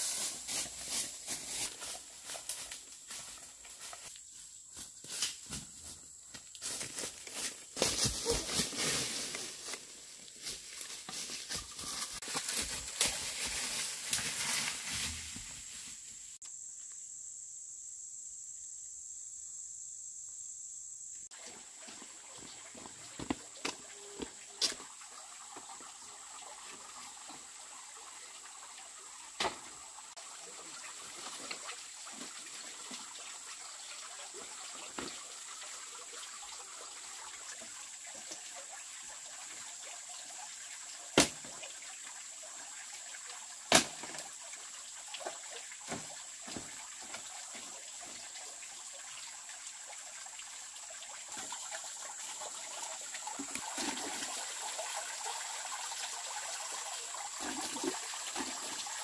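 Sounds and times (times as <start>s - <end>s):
water trickling: 21.4s - 59.0s.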